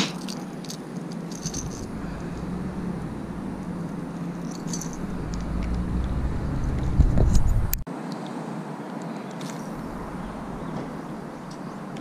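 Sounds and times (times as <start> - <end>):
steady low hum: 1.2 - 7.8, 9.6 - 12.0.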